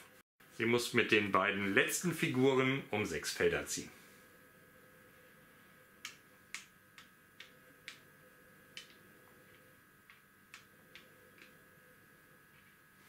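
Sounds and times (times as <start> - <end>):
wooden checkers clicking on board: 6.0 - 8.1, 8.7 - 11.6.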